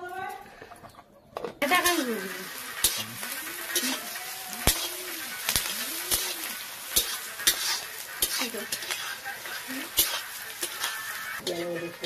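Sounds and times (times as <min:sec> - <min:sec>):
metal spatula scraping pan: 0:01.6 - 0:12.0
onions sizzling in oil: 0:01.6 - 0:12.0.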